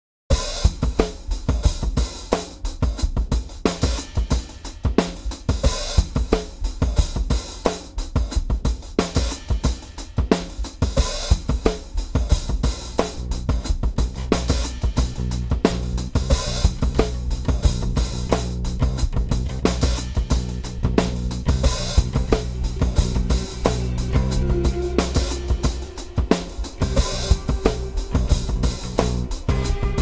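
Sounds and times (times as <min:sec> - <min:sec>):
drum kit playing driving beat: 0:00.3 - 0:30.0
sustained low notes: 0:20.4 - 0:30.0.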